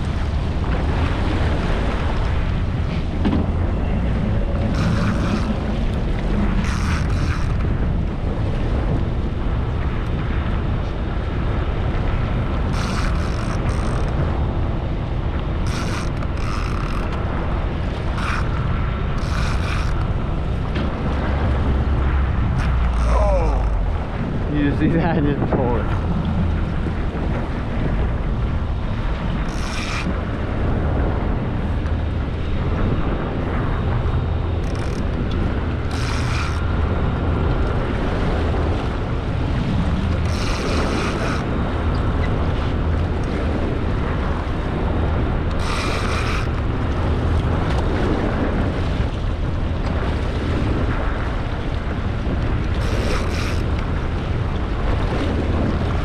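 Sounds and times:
sea water rushing and churning: 0.0s - 56.0s
wind buffeting microphone: 0.0s - 56.0s
outboard motor running: 1.0s - 7.8s.

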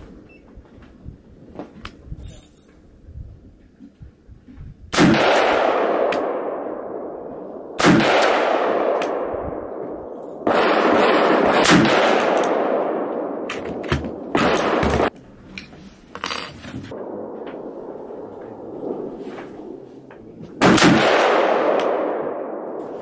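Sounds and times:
rifle shots echoing: 4.9s - 15.2s, 16.9s - 19.8s, 20.5s - 23.0s.

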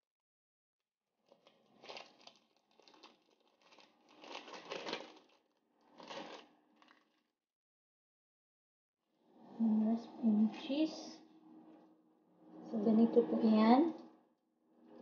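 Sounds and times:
plastic film crinkling: 1.2s - 7.2s.

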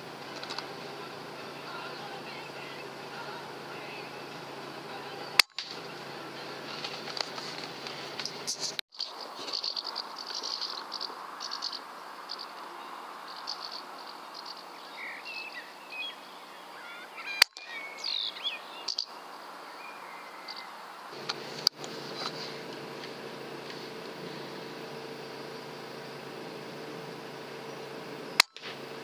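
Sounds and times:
small birds chirping: 0.0s - 29.0s
steady outdoor hiss: 0.0s - 29.0s
air rifle firing: 28.4s - 29.0s.

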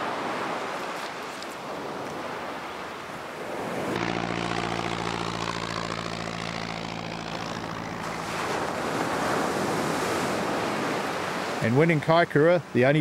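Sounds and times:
surf on shingle shore: 0.0s - 13.0s
engine drone: 3.9s - 11.7s.

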